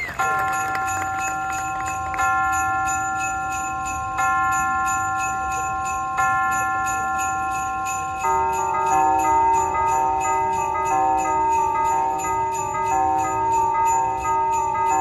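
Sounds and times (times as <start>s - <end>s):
bell-like chord: 0.2s - 15.0s.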